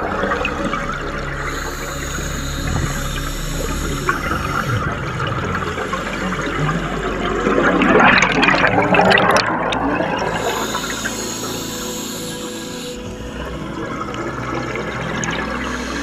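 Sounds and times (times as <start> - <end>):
underwater bubbles gurgling: 2.6 - 11.0.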